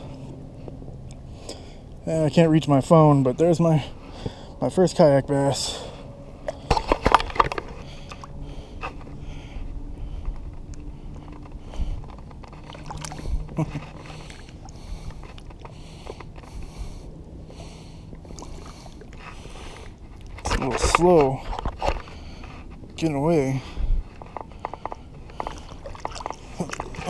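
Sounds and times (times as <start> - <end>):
water sloshing against kayak: 5.6 - 27.0.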